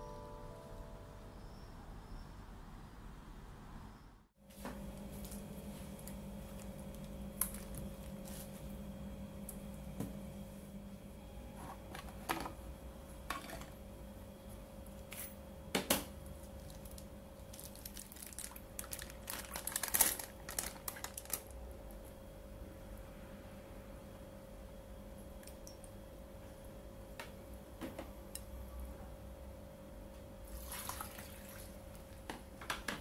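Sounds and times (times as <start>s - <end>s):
plastic bag crinkling: 16.5s - 21.6s.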